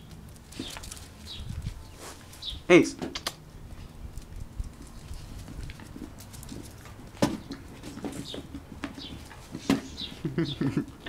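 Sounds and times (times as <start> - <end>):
dog paws scuffing on concrete: 0.0 - 10.3.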